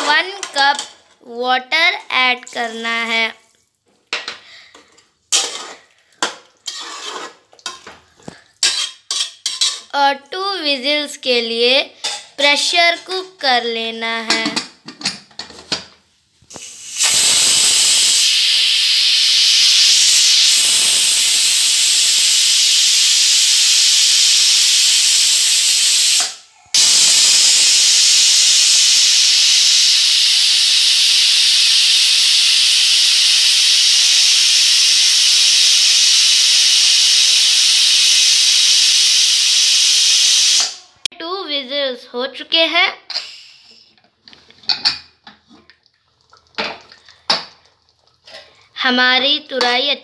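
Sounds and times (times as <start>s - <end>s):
pressure cooker whistling: 16.6s - 41.0s.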